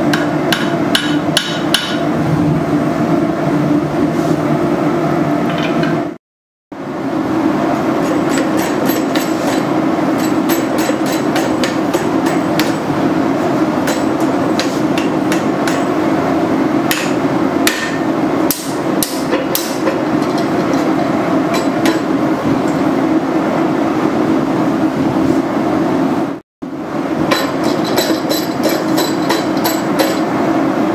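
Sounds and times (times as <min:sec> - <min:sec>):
hammer striking steel: 0:00.0 - 0:02.1, 0:08.0 - 0:12.9, 0:13.8 - 0:16.0, 0:16.9 - 0:20.9, 0:27.3 - 0:30.3.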